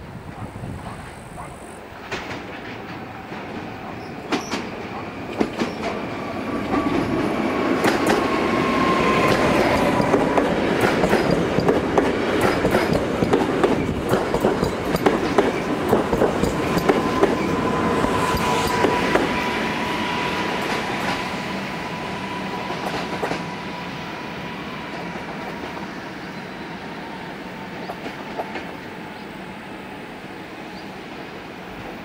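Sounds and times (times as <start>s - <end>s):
electric train passing: 0.0s - 32.0s
wheels clicking over rail joints: 9.2s - 17.5s.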